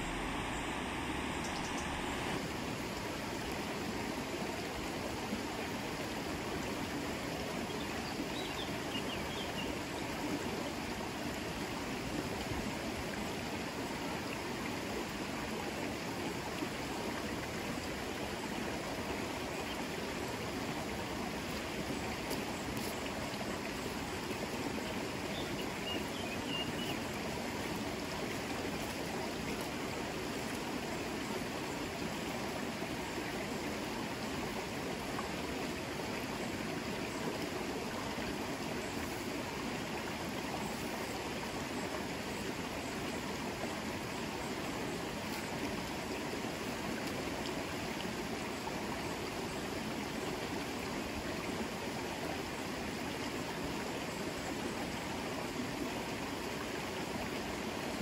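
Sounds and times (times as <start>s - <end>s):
river water flowing: 0.0s - 58.0s.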